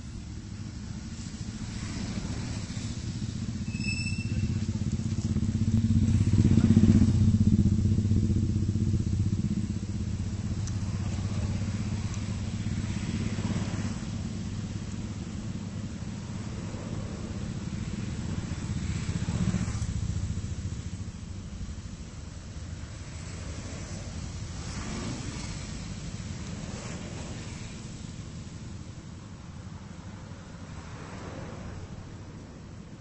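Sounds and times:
passing vehicle engine hum: 0:00.0 - 0:33.0
brief high chirp: 0:03.7 - 0:04.5.

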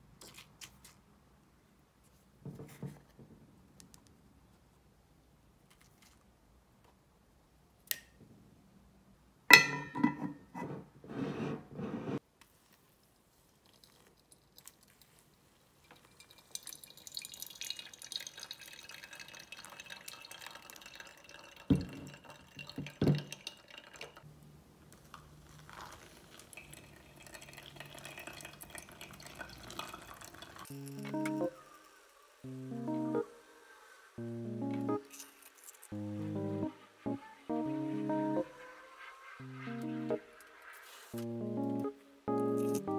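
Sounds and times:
glassy clatter of jar: 0:09.5 - 0:10.4
faint dripping: 0:13.4 - 0:24.2
water poured from kettle: 0:13.6 - 0:24.2, 0:25.4 - 0:32.5, 0:34.9 - 0:36.0.

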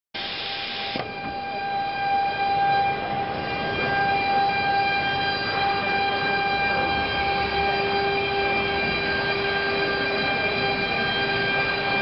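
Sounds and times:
hiss: 0:00.2 - 0:01.0
router spindle high whine: 0:00.2 - 0:12.0.

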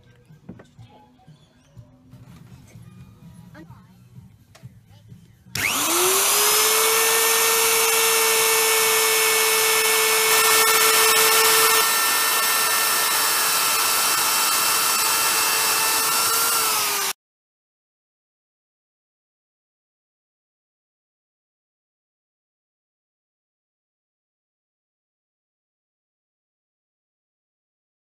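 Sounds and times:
router motor whine: 0:05.6 - 0:17.2.

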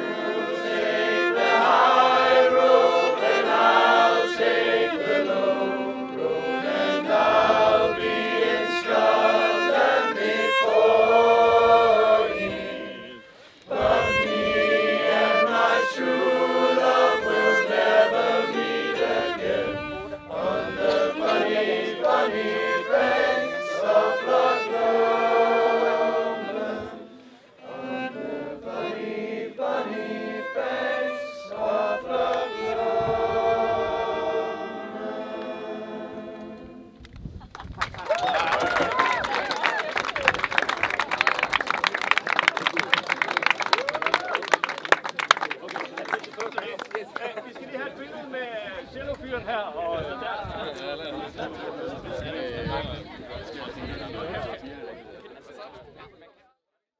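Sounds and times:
choir of young voices singing: 0:00.0 - 0:37.0
cello: 0:00.0 - 0:37.4.

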